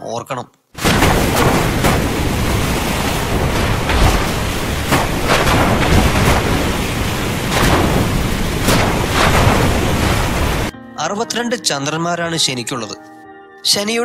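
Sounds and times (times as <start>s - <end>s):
rain and wind rushing: 0.8s - 10.7s
thunder cracks: 0.8s - 10.7s.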